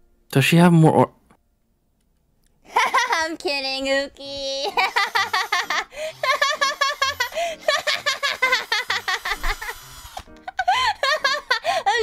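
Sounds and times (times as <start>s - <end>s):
woman laughing: 2.7s - 3.4s, 4.6s - 9.8s, 10.4s - 12.0s.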